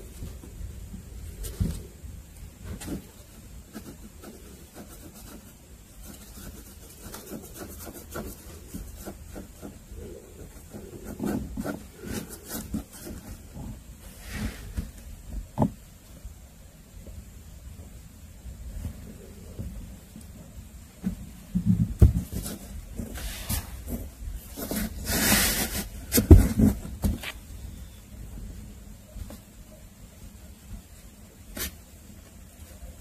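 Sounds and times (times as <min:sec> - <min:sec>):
cardboard and paper rustling: 0:21.0 - 0:27.4.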